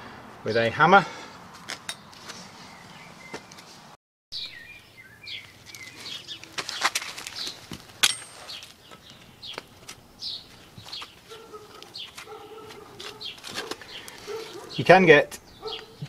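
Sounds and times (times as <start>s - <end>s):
small birds chirping: 0.5s - 3.8s, 4.4s - 16.0s
metal taps and clinks: 8.0s - 8.5s.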